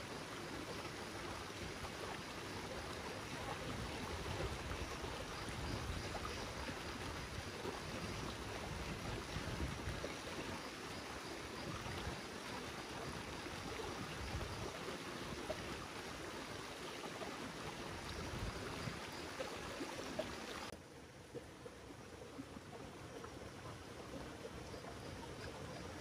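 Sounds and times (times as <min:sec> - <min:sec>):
stream water rushing: 0:00.0 - 0:20.8.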